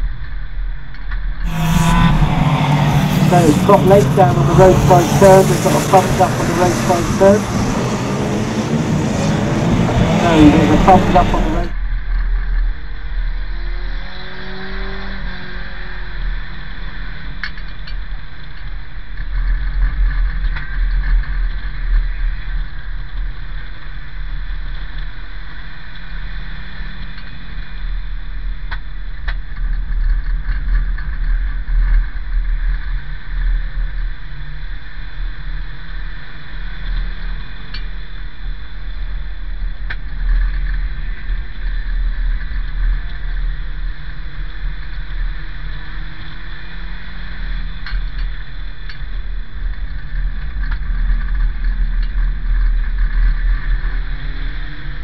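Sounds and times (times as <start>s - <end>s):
car engine and road rumble: 0.2s - 55.0s.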